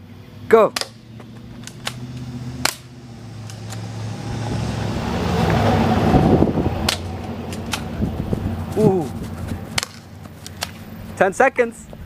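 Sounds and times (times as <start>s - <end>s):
airsoft pistol firing clicks: 0.7s - 1.0s, 1.6s - 3.8s
wind rushing on microphone: 3.9s - 10.2s
microphone handling noise: 7.6s - 11.1s.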